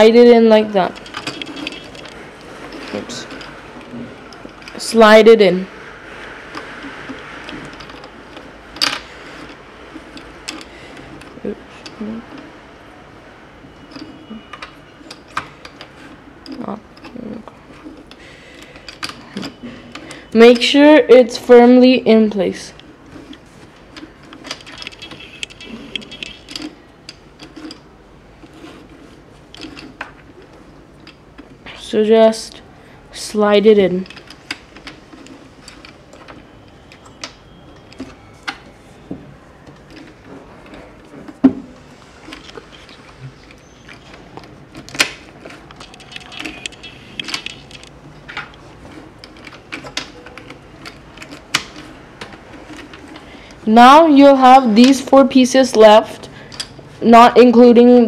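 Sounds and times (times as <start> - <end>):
plastic pieces clicking: 22.8 - 32.6, 33.8 - 38.7, 42.2 - 53.6
plastic cube pieces clicking: 42.3 - 53.0.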